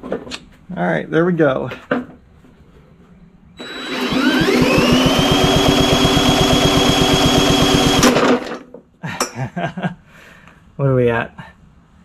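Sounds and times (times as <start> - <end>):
mower engine cranking whine: 3.6 - 8.6.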